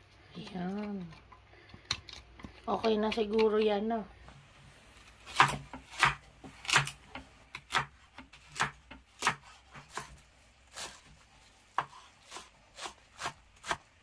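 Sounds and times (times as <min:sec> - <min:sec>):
knife chopping on cutting board: 0:05.3 - 0:14.0.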